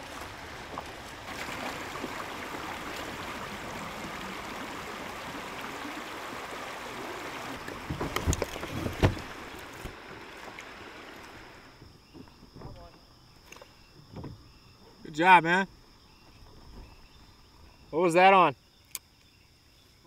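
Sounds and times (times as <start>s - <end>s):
river water rushing over rocks: 0.0s - 11.8s.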